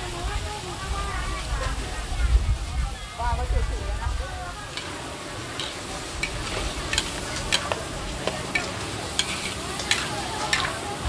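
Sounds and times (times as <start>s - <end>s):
food sizzling: 0.0s - 11.0s
metal utensils scraping a wok: 4.7s - 11.0s.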